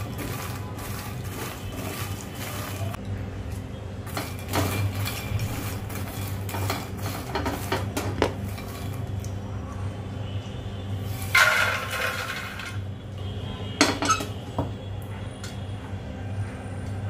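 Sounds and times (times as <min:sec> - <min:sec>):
spatula scraping pan: 0:00.0 - 0:03.0, 0:04.1 - 0:09.1.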